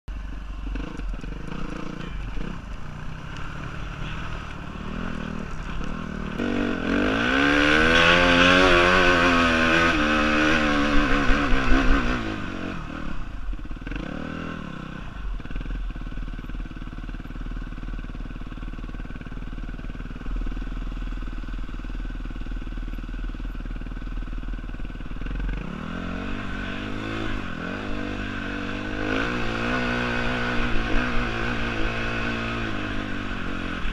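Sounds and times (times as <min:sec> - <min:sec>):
dirt bike engine revving: 0:00.6 - 0:15.8, 0:25.0 - 0:33.9.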